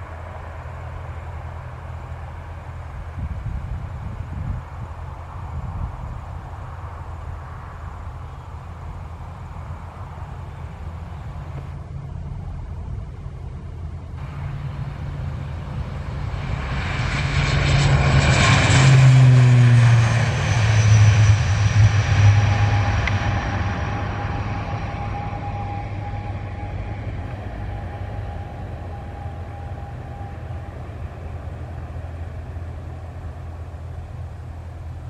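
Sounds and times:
turboprop aircraft taking off: 0.0s - 35.0s.

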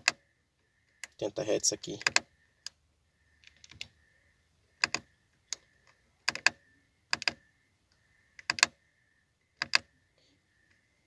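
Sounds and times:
control knob clicking: 2.0s - 2.8s, 4.8s - 5.6s, 6.2s - 7.4s, 8.4s - 8.8s, 9.6s - 9.9s.

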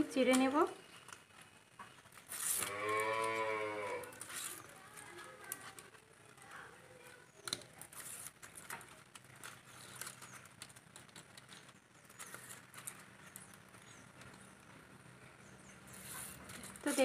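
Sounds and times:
leaves tearing and rustling: 1.0s - 6.0s, 7.4s - 13.6s, 15.9s - 17.0s.

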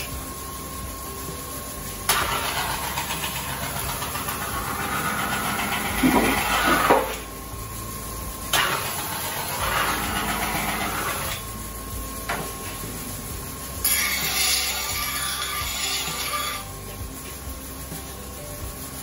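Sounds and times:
grinding wheel humming: 0.0s - 19.0s
knife grinding rasp: 2.1s - 7.2s, 8.6s - 11.4s, 13.8s - 16.8s.

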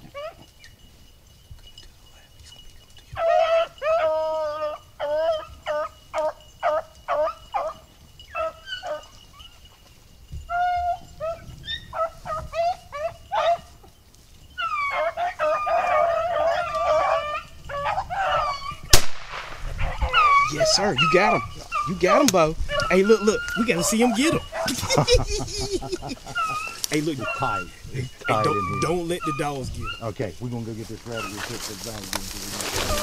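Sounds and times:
dogs baying: 0.0s - 0.8s, 2.5s - 19.0s, 19.6s - 33.0s
shotgun shot: 18.9s - 19.7s.

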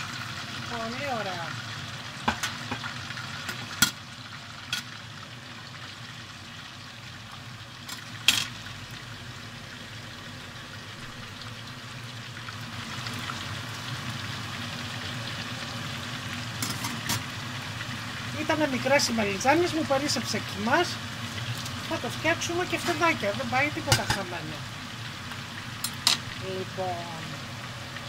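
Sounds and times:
food sizzling in hot oil: 0.0s - 28.0s
kitchen utensils clinking: 7.9s - 8.6s, 16.6s - 17.2s, 23.8s - 24.4s, 25.8s - 26.3s.

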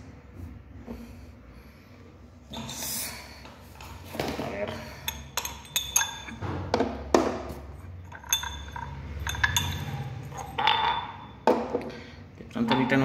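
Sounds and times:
small glass cups clinking: 4.7s - 13.0s.

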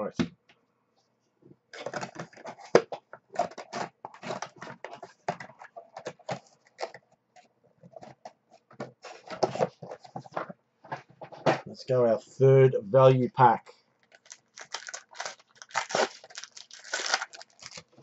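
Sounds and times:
packaging rustling and crinkling: 1.7s - 10.5s, 14.0s - 18.0s.

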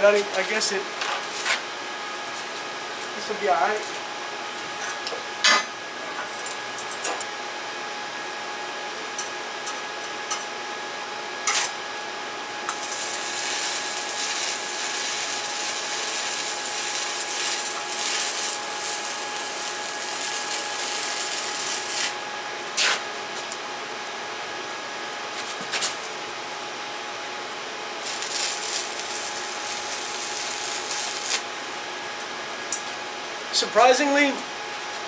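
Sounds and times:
steady hum: 0.0s - 35.0s
welding arc crackling and hissing: 12.6s - 23.1s, 28.0s - 32.0s.

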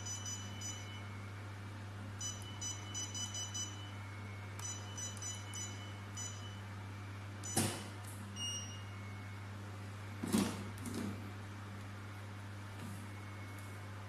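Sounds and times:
short electronic beeps: 0.0s - 1.1s, 2.2s - 4.0s, 4.6s - 6.7s, 8.4s - 9.2s
steady low hum: 0.0s - 14.0s.

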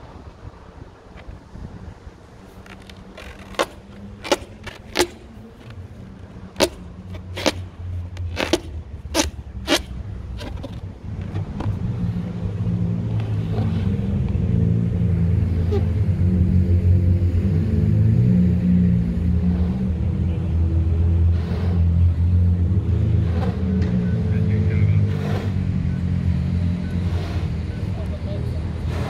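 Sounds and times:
breath droning through balloon: 21.3s - 22.0s, 25.1s - 25.6s, 27.0s - 27.9s, 28.8s - 29.0s.

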